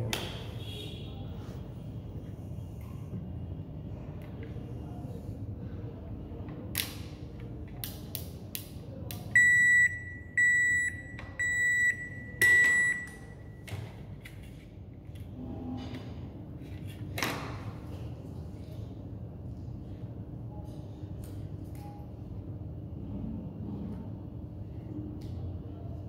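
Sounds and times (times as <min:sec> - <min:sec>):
high-pitched buzzer beeps: 0:09.4 - 0:13.2.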